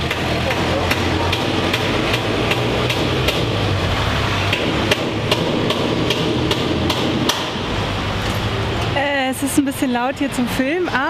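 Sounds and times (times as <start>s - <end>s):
loud hammer blows: 0.0s - 8.0s.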